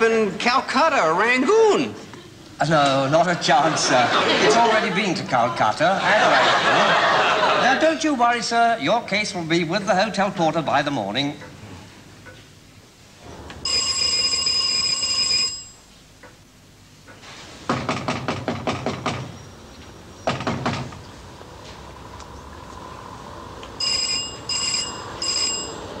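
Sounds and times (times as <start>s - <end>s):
electric bell ringing: 13.6s - 15.9s, 23.8s - 26.0s
fist knocking on glass window: 17.7s - 19.3s, 20.3s - 21.0s.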